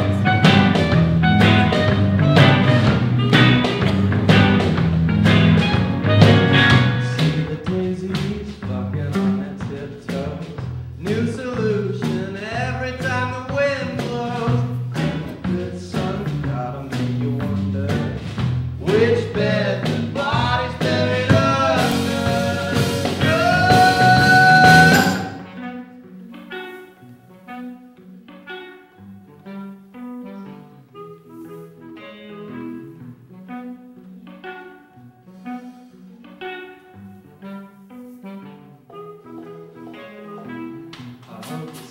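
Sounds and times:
drums: 0.0 - 25.6, 41.0 - 41.9
walking bass: 0.0 - 26.5
person singing melody: 18.9 - 25.8, 38.9 - 41.9.

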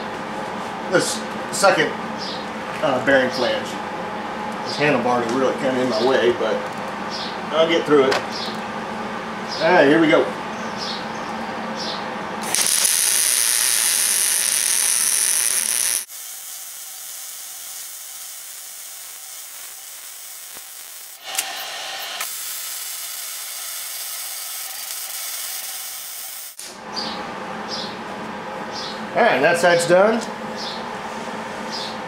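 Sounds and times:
welder arc crackling and hissing: 12.4 - 26.8.

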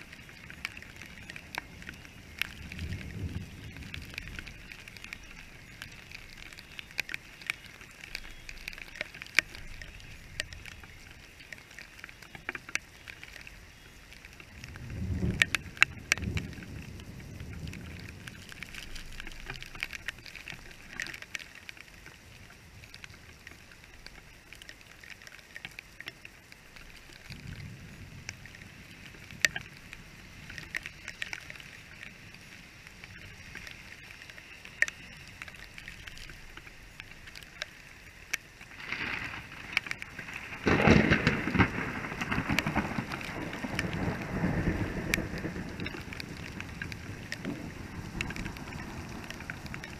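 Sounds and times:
rain on wet street: 0.0 - 49.9
raindrops ticking on camera: 0.0 - 49.9.

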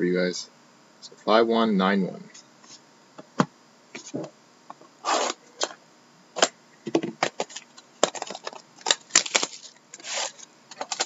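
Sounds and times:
cardboard and plastic crackling: 7.2 - 11.0
wrapping rustling: 7.4 - 11.0.

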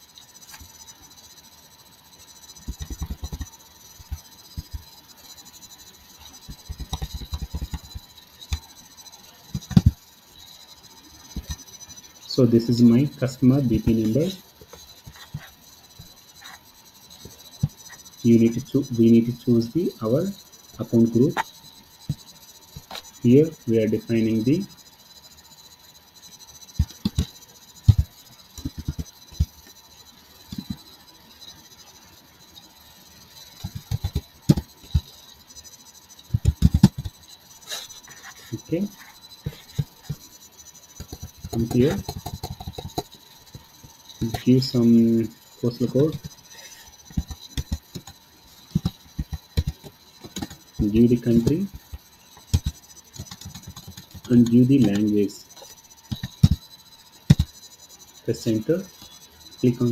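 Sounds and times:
faint steady hiss: 0.0 - 59.9
computer keyboard keys clicking: 2.7 - 3.5, 6.5 - 8.6, 36.3 - 37.1, 41.1 - 43.1, 47.1 - 51.8, 52.5 - 55.1.

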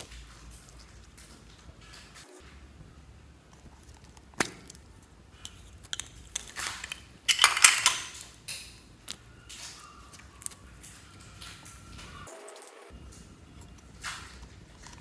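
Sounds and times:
slime crackling and popping: 3.8 - 12.1.

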